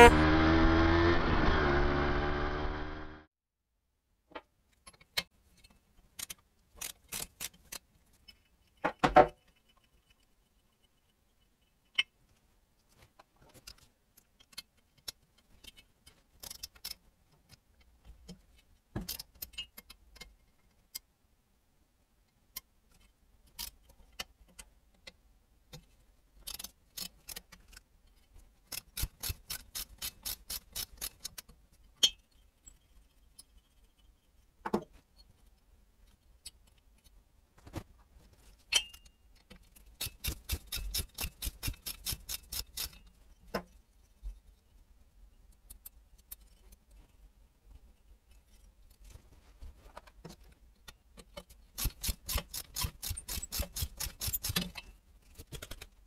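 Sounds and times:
ratchet wrench clicking: 0:28.7 - 0:31.4, 0:40.0 - 0:43.0, 0:51.8 - 0:54.8.

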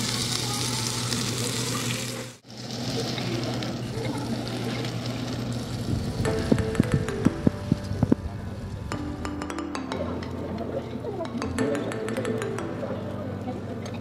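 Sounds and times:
pork sizzling on a grill: 0:00.0 - 0:10.8.

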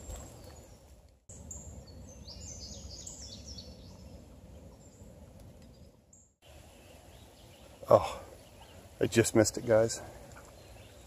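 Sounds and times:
songbirds singing: 0:00.0 - 0:11.0.

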